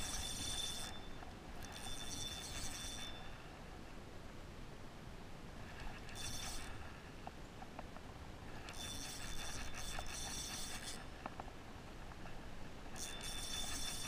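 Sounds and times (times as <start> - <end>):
fishing reel whirring: 0.0 - 3.5, 5.7 - 6.9, 8.5 - 11.2, 12.9 - 14.0.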